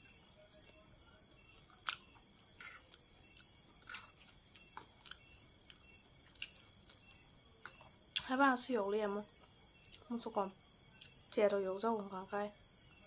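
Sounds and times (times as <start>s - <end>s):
chewing noodles: 1.6s - 8.3s.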